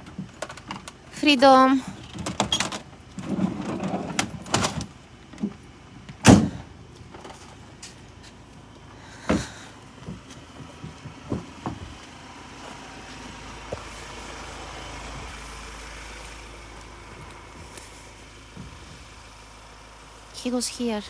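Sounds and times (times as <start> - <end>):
steady low rumble: 0.0 - 21.0
truck door slamming: 6.2 - 6.7
footsteps on dirt: 7.0 - 19.6.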